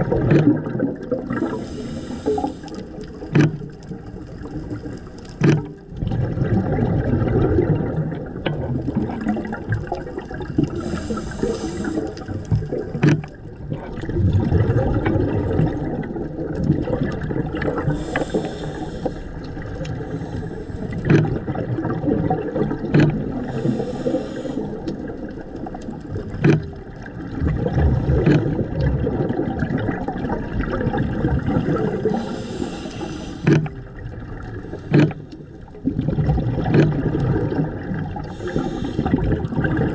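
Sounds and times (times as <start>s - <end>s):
underwater bubbling: 0.0s - 39.9s
regulator hiss: 10.8s - 12.3s, 18.0s - 19.4s, 23.4s - 24.8s, 32.1s - 33.5s, 38.3s - 39.2s.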